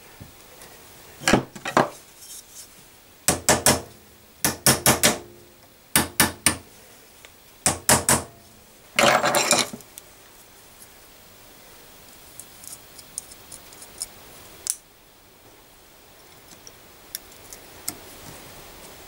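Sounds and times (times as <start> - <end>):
hammer tapping on metal: 3.3 - 5.3, 6.0 - 6.6, 7.7 - 8.4.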